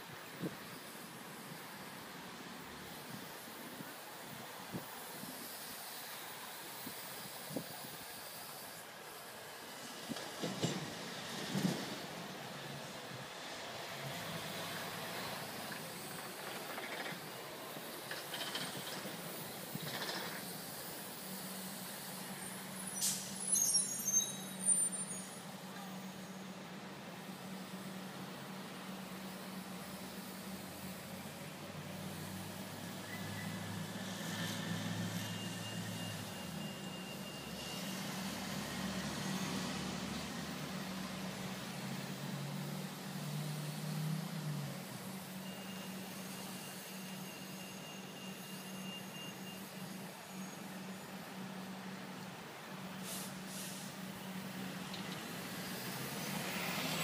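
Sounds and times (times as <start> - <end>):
buses idling: 0.0 - 57.0
heavy vehicle engine hum: 0.0 - 57.0
traffic noise: 0.0 - 57.0
air brake hissing: 19.2 - 25.4, 53.0 - 54.1.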